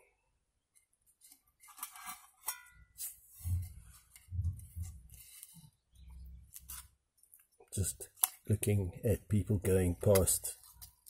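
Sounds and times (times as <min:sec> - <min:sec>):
dull low thumps: 0:03.4 - 0:05.1.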